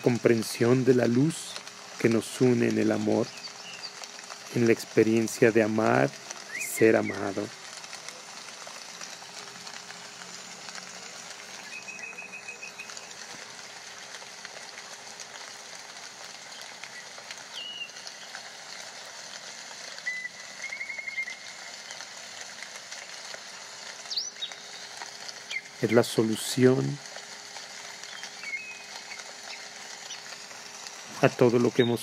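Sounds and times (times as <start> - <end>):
steady soft hiss: 0.0 - 32.0
high chirps and trills: 11.0 - 13.2.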